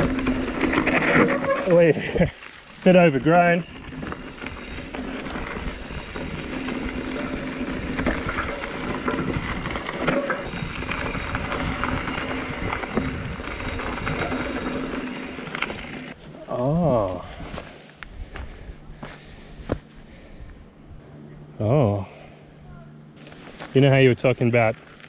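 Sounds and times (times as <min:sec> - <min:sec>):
bike clicks and rattles: 0:00.0 - 0:16.2.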